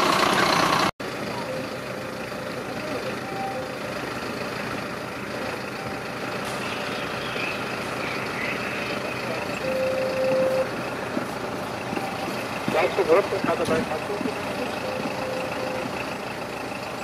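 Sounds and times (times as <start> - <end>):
diesel engine running: 0.0 - 17.0
short beeps: 1.4 - 3.8, 9.4 - 10.7, 11.8 - 13.2, 14.4 - 16.2.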